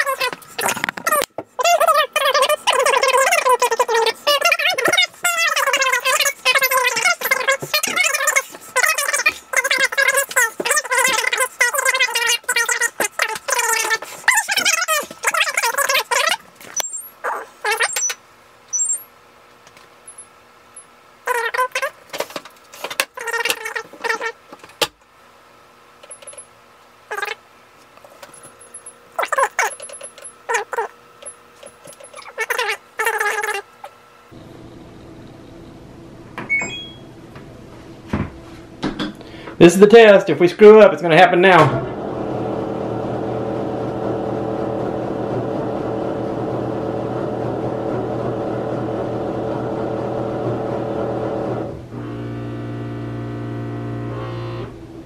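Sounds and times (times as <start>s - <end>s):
washing machine humming: 0.0s - 55.0s
washing machine control panel beeping: 36.3s - 37.3s.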